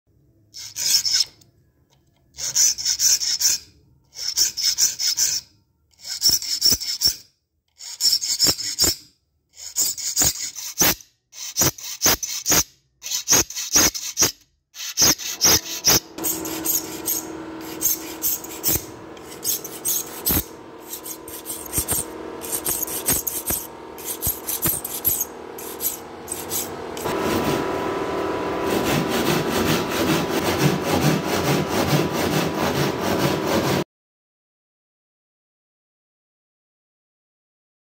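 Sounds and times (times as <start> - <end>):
file rasping on saw teeth: 0.6 - 1.4, 2.4 - 7.2, 7.8 - 27.2, 28.7 - 33.8
handsaw cutting a board: 9.6 - 33.8.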